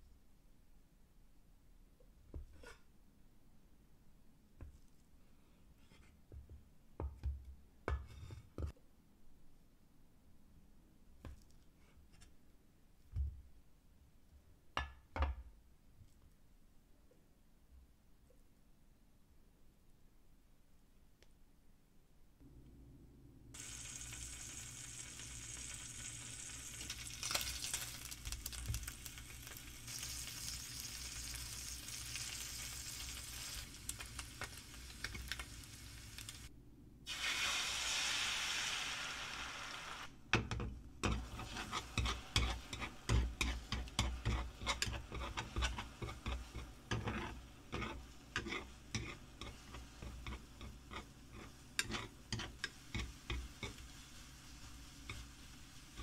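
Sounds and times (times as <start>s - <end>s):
meat sizzling in oil: 23.6s - 36.5s, 37.1s - 40.1s, 41.0s - 56.0s.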